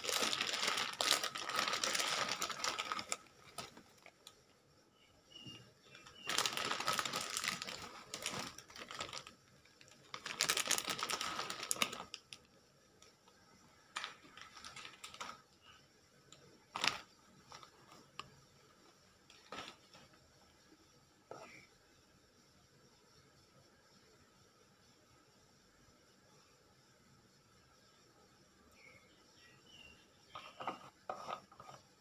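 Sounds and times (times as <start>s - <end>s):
plastic packet crinkling: 0.0s - 4.4s, 6.0s - 12.5s, 14.0s - 15.5s, 16.7s - 18.1s.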